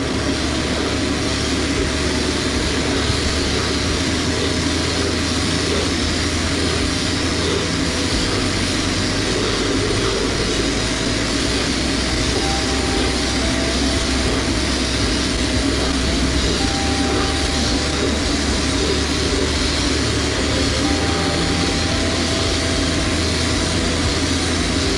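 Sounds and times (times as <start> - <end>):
compressed air and grit blasting metal: 0.0 - 24.9
low steady hum: 0.0 - 24.9.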